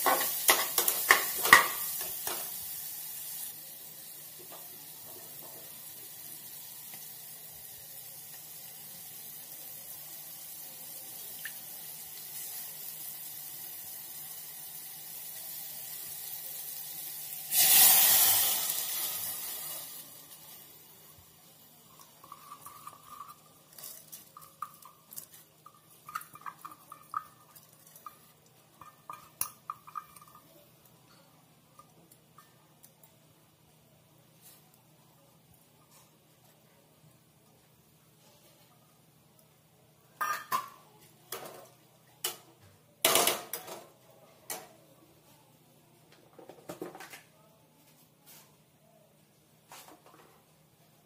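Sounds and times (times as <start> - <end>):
ladle clinking in pot: 40.2 - 40.8.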